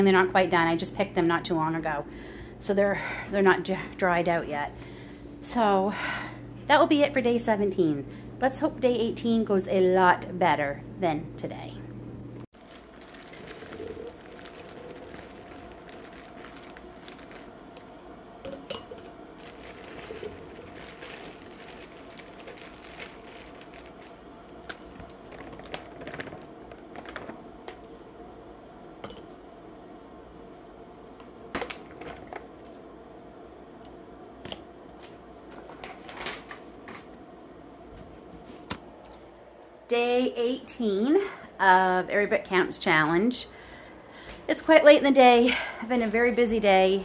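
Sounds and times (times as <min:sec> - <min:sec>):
faint steady hum: 0:00.0 - 0:47.0
frozen fruit rattling into jars: 0:12.6 - 0:17.8, 0:18.6 - 0:27.4.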